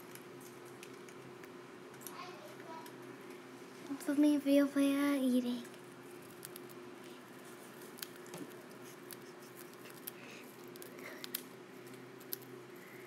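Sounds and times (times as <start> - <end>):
bird cracking seeds with beak: 5.7 - 6.8, 7.8 - 12.6.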